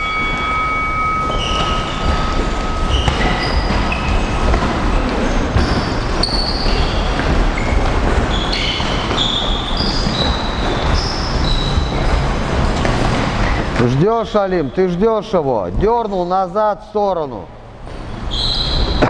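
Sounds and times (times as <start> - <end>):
shoes squeaking on canvas: 1.2 - 13.2.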